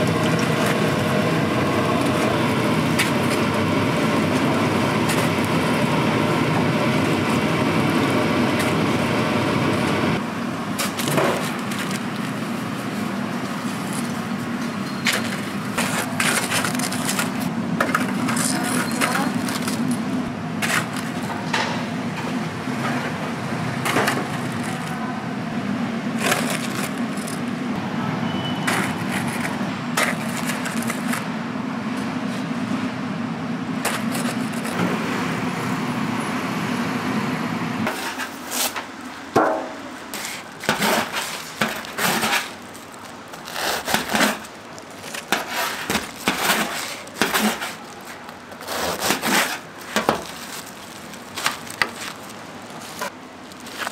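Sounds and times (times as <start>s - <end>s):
knife cutting crisp crust: 43.5s - 44.4s, 48.6s - 50.2s.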